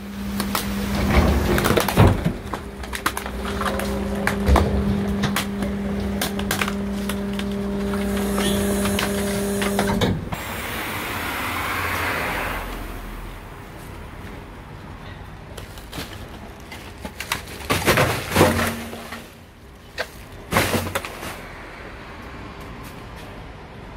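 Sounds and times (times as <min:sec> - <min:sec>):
garbage truck packer humming: 0:00.0 - 0:14.4, 0:16.0 - 0:21.6
bags and metal crunching: 0:00.1 - 0:10.1, 0:15.4 - 0:21.6.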